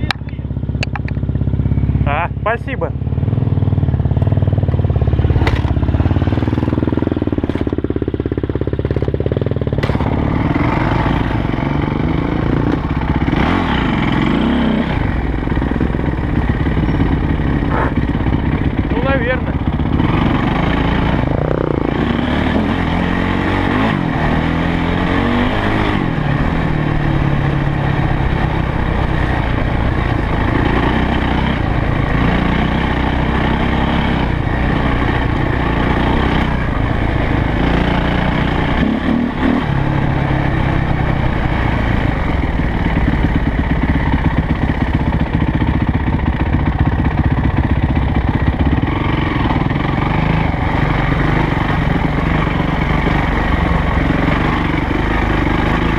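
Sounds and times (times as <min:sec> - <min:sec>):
dirt bike engine revving: 0:00.0 - 0:55.9.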